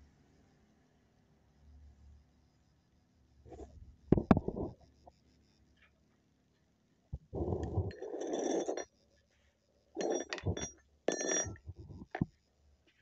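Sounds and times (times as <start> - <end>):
metal tools clinking and scraping: 7.6 - 8.9, 10.0 - 12.3.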